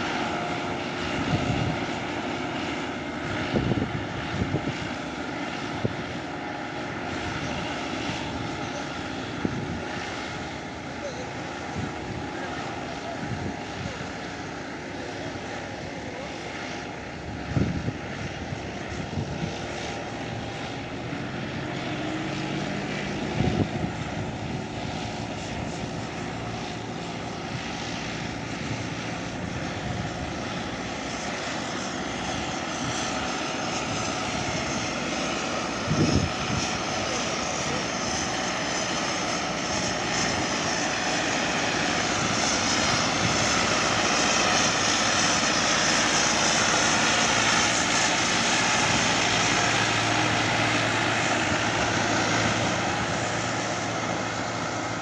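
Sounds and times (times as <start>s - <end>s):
tractor diesel engine running: 33.1s - 55.0s.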